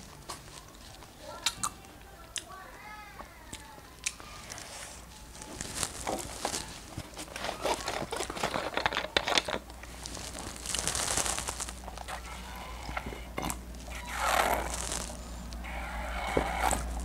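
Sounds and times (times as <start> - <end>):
plastic bottle crinkling: 5.2 - 17.0.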